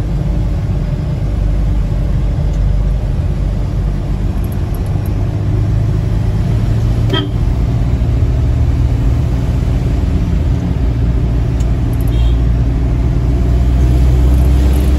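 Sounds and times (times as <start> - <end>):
car engine and tyres droning: 0.0 - 14.9
car horn toot: 7.1 - 7.5, 12.0 - 12.5.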